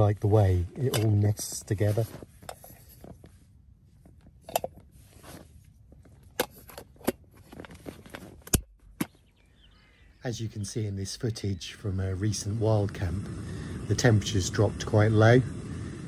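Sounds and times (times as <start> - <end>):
faint handling noise: 0.0 - 9.6.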